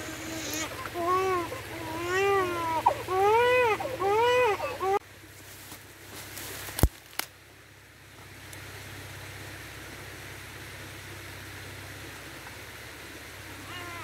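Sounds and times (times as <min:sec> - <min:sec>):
stream water rushing over weir: 0:00.0 - 0:14.0.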